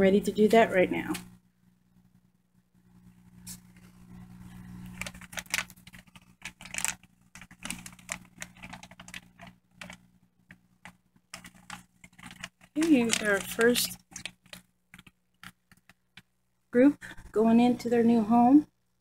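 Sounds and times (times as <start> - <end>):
steady low hum: 0.0 - 19.0
plastic bag crinkling: 3.8 - 16.3.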